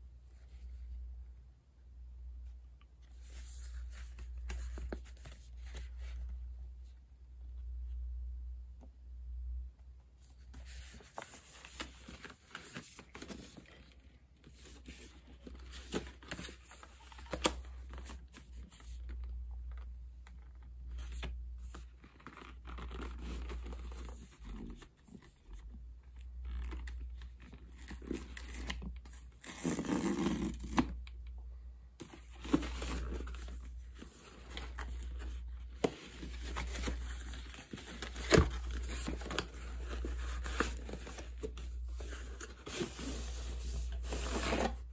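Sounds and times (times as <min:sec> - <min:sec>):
paper and plastic crinkling: 0:32.0 - 0:44.9.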